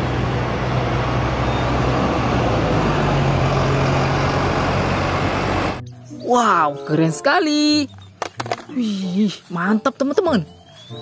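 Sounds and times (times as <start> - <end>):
bus engine driving past: 0.0 - 5.9
road noise: 0.0 - 11.0.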